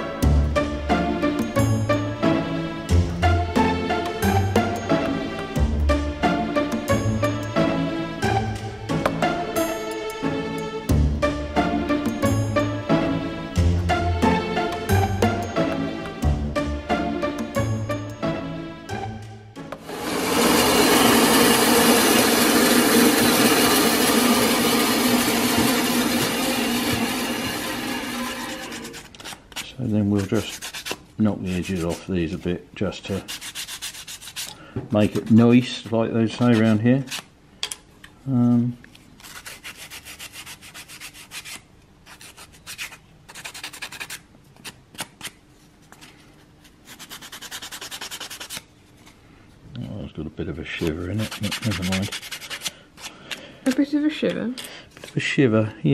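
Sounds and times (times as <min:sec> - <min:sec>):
band saw running: 0:19.8 - 0:29.1
sandpaper rubbing wood: 0:19.8 - 0:35.7, 0:39.2 - 0:44.3, 0:46.6 - 0:48.7, 0:50.9 - 0:52.7.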